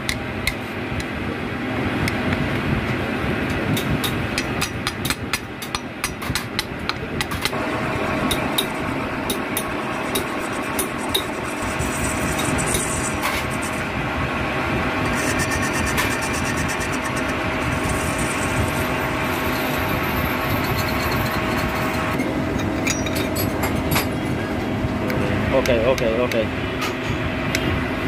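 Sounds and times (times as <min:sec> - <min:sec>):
lathe spinning with steady tone: 0:06.1 - 0:23.6.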